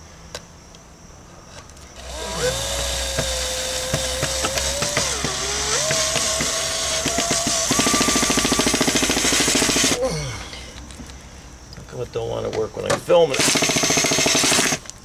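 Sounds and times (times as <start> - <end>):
cordless drill whining: 2.0 - 10.0, 13.4 - 14.9.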